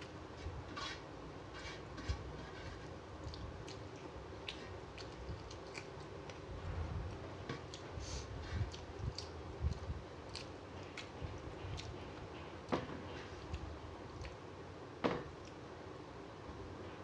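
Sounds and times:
wet mouth chewing: 3.2 - 6.5, 7.1 - 12.0, 13.4 - 14.4.

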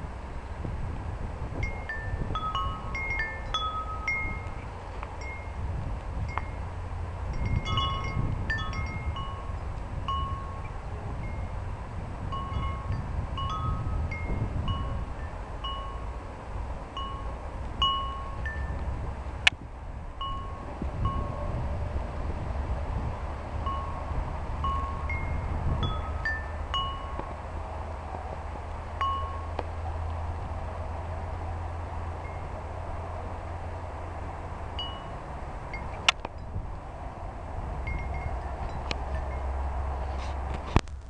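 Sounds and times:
wind rumbling on microphone: 0.0 - 41.0
metal wind chime ringing: 1.6 - 5.6, 7.3 - 11.6, 12.3 - 16.1, 17.0 - 18.8, 23.7 - 27.2, 29.0 - 29.6, 34.8 - 36.6, 37.9 - 39.6.

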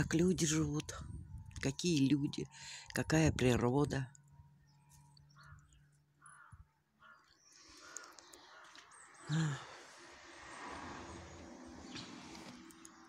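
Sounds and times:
crows cawing: 5.3 - 9.0.

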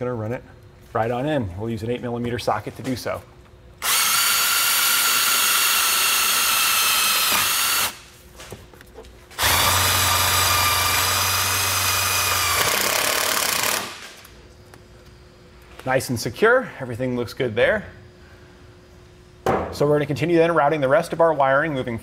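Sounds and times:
cordless drill motor whine: 3.8 - 8.0, 9.4 - 14.0.

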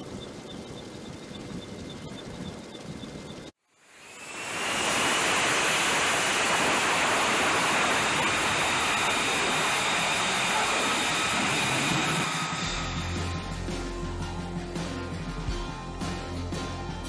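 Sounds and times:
high turbine whine: 0.0 - 14.5
jet engine roar: 3.9 - 13.7.

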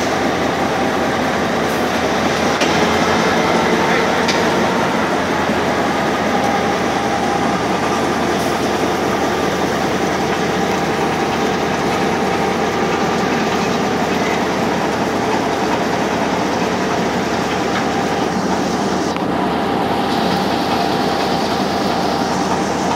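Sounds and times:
diesel locomotive engine idling: 0.0 - 22.9.

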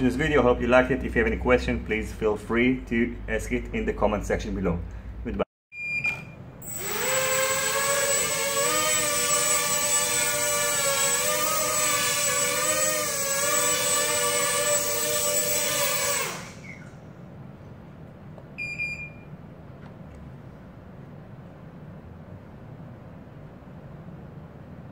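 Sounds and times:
drone motors whining: 6.6 - 17.0.

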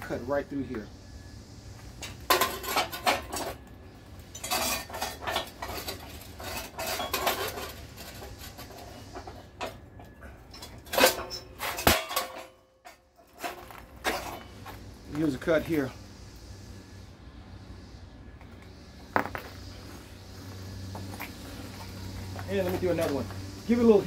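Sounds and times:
brick clinking on steel: 4.3 - 14.6.

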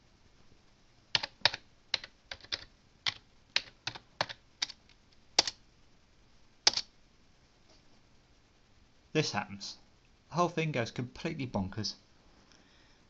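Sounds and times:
computer keyboard typing: 1.1 - 5.6, 6.6 - 6.9.

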